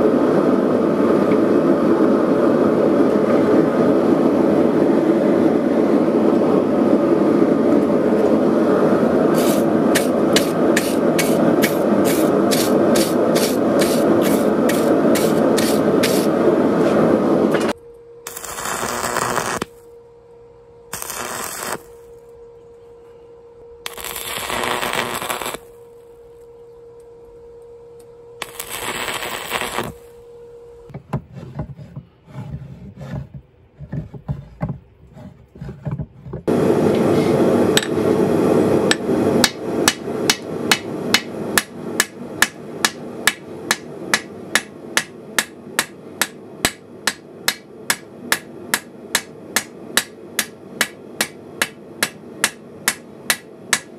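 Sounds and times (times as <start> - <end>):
steady hum: 0.0 - 53.9
welding arc crackle: 9.4 - 16.3, 18.3 - 19.8, 20.9 - 22.0, 23.8 - 25.8, 28.4 - 30.2
hammer striking steel on anvil: 37.8 - 38.0, 38.9 - 53.9.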